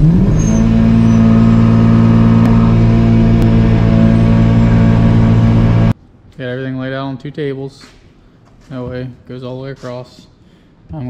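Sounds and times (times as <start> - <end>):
car engine revving: 0.0 - 6.0.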